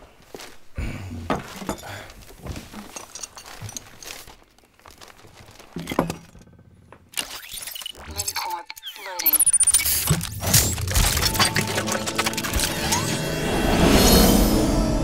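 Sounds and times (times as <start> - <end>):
paper bag crinkling: 2.1 - 6.4, 9.6 - 12.8.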